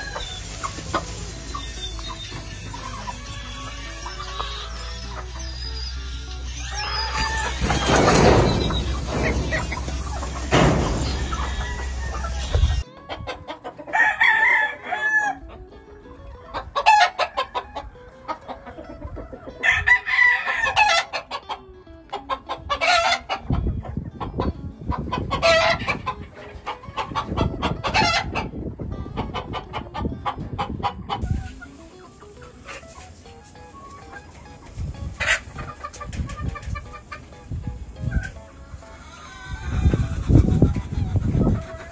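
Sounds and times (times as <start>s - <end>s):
roosters crowing: 0.0s - 12.8s, 13.8s - 15.5s, 19.5s - 21.2s, 25.3s - 26.1s
hens clucking: 0.0s - 41.9s.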